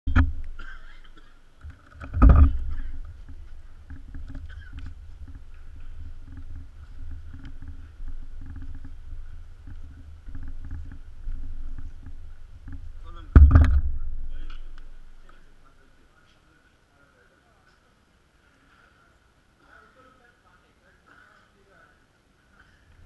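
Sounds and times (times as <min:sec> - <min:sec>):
handling and wind noise: 0:00.1 - 0:15.3
loud knock: 0:13.3 - 0:14.0.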